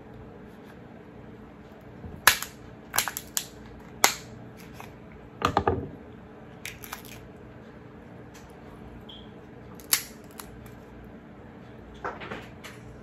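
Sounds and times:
crab shell cracking: 2.2 - 5.0, 6.6 - 7.3, 9.8 - 10.8.

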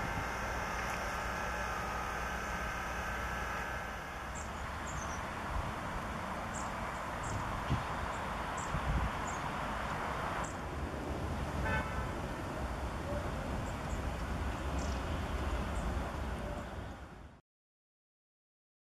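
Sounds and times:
birds giving high thin calls: 4.2 - 5.4.

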